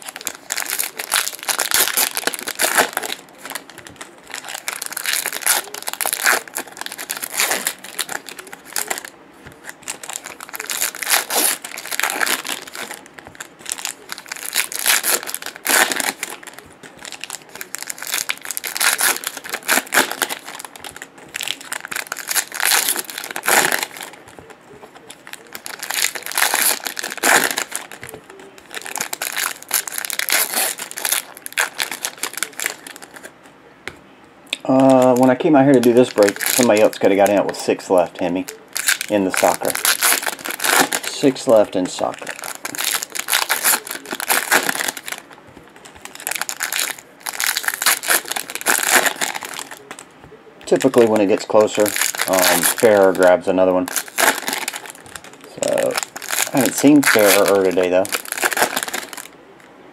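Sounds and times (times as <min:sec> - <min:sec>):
foil wrappers crinkling: 0:00.0 - 0:33.4, 0:34.6 - 0:59.4.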